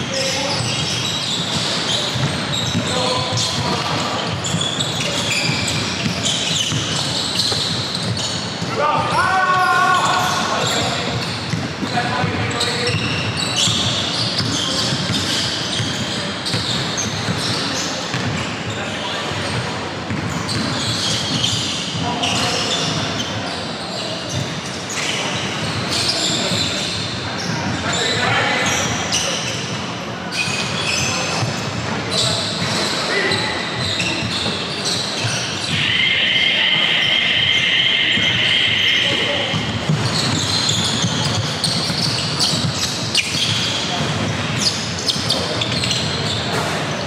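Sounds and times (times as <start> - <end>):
noisy hall background: 0.0 - 47.0
players' voices: 0.0 - 47.0
sneaker squeaks: 0.0 - 47.0
ball bouncing on court floor: 0.5 - 8.8, 10.0 - 18.5, 19.3 - 23.1, 39.0 - 47.0
basketball bouncing on floor: 20.1 - 21.5, 39.1 - 44.4.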